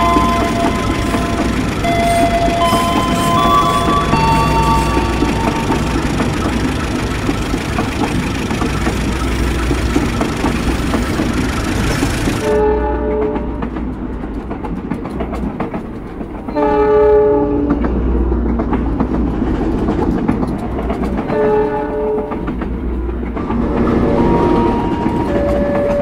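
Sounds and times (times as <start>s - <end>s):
train horn: 0.0s - 6.5s, 12.4s - 13.7s, 16.5s - 17.9s, 21.3s - 22.4s
locomotive engine rumble: 0.0s - 12.6s
train wheels clicking on track: 0.0s - 26.0s.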